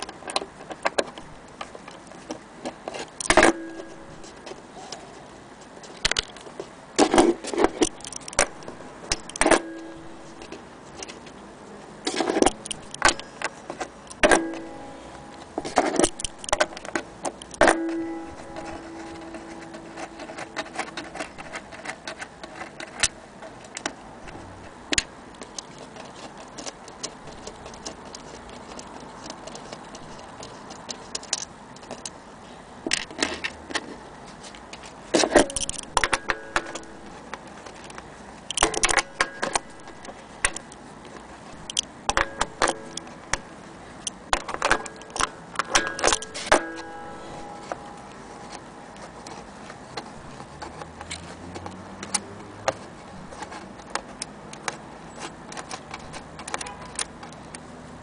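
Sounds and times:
metal hardware clicking and clinking: 0.0 - 4.6, 5.9 - 11.3, 12.1 - 32.2, 34.8 - 49.4, 55.4 - 57.6
short ringing tone: 3.4 - 4.2, 9.5 - 10.4, 17.7 - 20.1.

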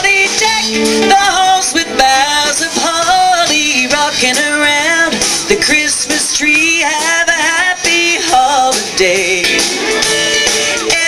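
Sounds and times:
person singing with vibrato: 0.0 - 9.8
acoustic guitar: 0.0 - 11.0
drums: 0.0 - 11.0
electric guitar: 0.0 - 11.0.

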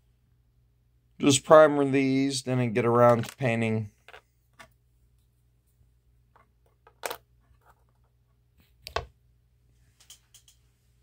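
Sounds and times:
plastic parts clicking and tapping: 3.0 - 4.7.

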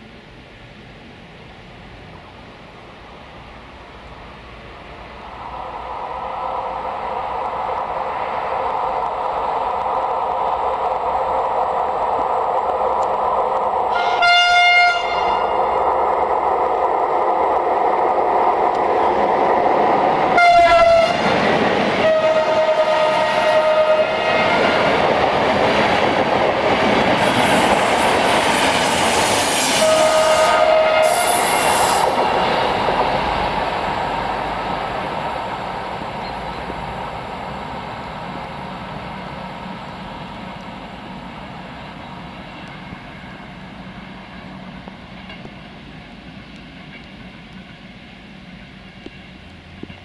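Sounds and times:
train coaches rolling over rails: 15.0 - 50.0.

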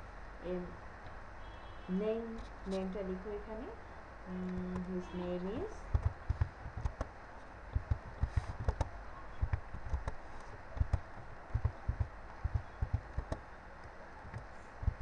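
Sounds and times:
typing on computer keyboard: 5.9 - 7.1.

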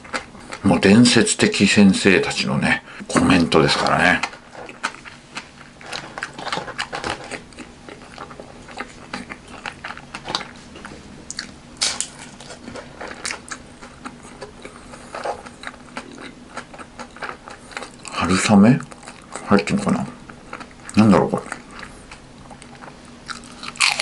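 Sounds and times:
crunchy food being chewed: 0.0 - 0.7, 3.7 - 24.0.

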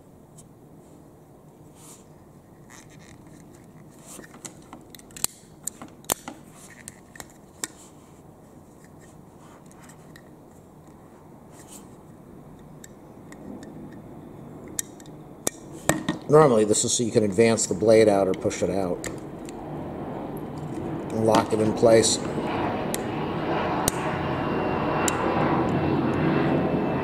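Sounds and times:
light scraping and rubbing: 1.7 - 4.6, 6.5 - 12.1.

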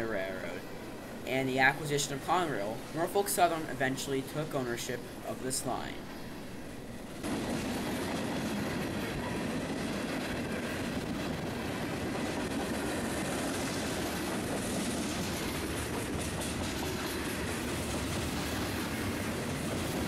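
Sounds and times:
freight train wheels rumbling: 7.2 - 20.0
wheels clattering over rail joints: 7.7 - 20.0.

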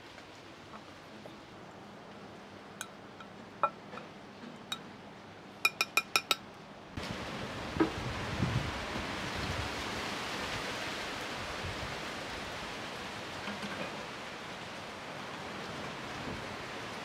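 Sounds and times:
spoon clinking against brass mortar: 5.7 - 6.4.

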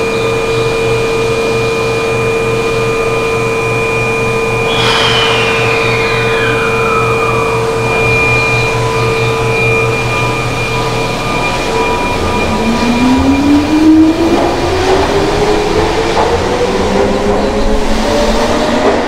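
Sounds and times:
train traction motor whine: 0.1 - 19.0
steady whining tones: 3.4 - 17.9.

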